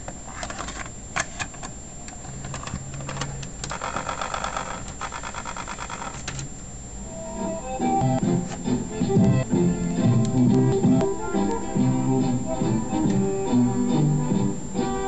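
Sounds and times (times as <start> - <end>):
cassette motor whirring: 0.0 - 6.6, 7.4 - 15.0
rapid mechanical ticking: 3.2 - 6.5
faint tape music playing: 4.6 - 15.0.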